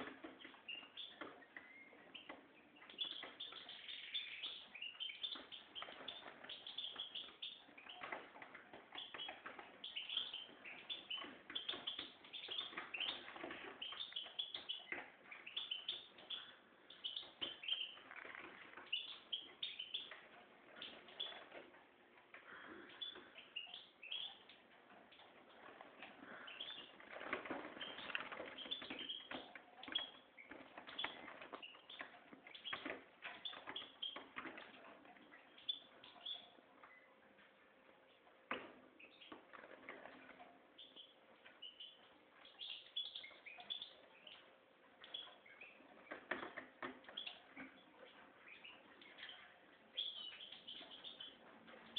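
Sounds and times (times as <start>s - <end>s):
bird twittering chirps and trills: 0.0s - 21.8s, 22.4s - 38.3s, 38.9s - 51.9s.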